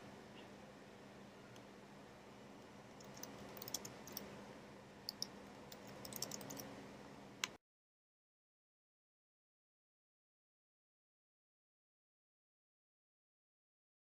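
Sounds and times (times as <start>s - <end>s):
low steady hum: 0.0s - 7.6s
mouse and keyboard clicks: 3.0s - 4.3s, 5.1s - 6.7s.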